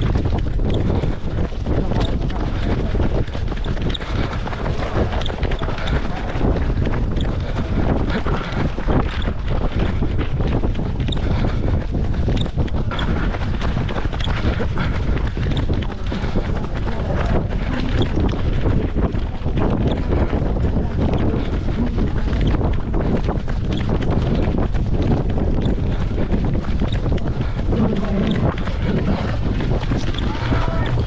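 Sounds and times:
footsteps on wet asphalt: 0.0 - 31.0
wind buffeting microphone: 0.0 - 31.0.

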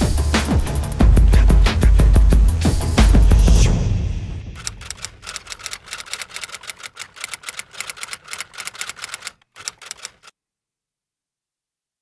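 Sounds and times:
rapid key clicks: 4.6 - 10.3.

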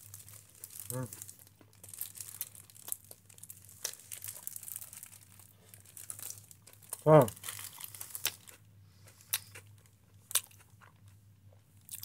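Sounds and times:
plastic film wrapper crinkling: 0.0 - 8.5.

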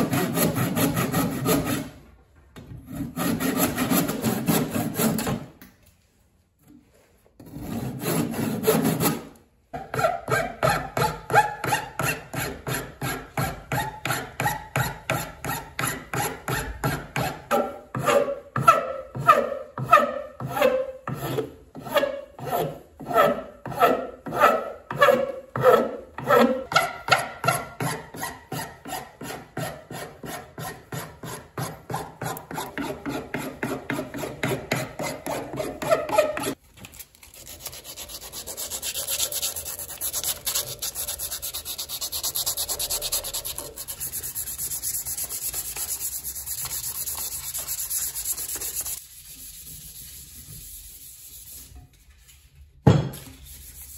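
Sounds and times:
hand file rasping on wood: 0.0 - 2.0, 2.9 - 5.4, 7.4 - 36.6, 37.4 - 49.0
sandpaper rubbing on wood: 37.3 - 51.7, 53.4 - 53.9.

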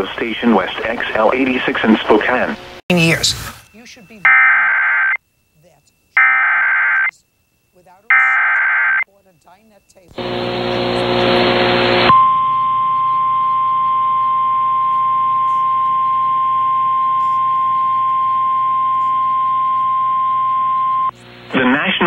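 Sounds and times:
steady alarm tone: 3.9 - 5.2, 6.2 - 7.1, 8.1 - 9.1, 10.2 - 22.0
low hum: 10.2 - 21.8.

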